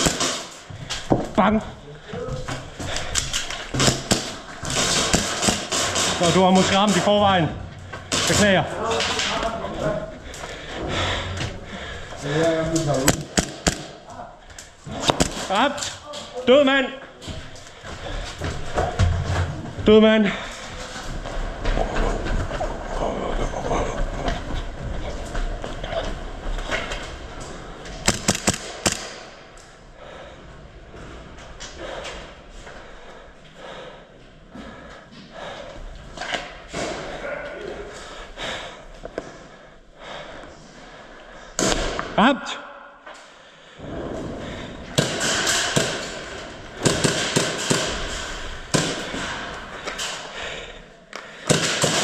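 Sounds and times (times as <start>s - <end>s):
airsoft gun shots: 13.1s - 13.9s, 28.0s - 29.3s, 46.8s - 48.0s, 51.5s - 52.0s
airsoft gun shots with echo: 28.1s - 29.2s.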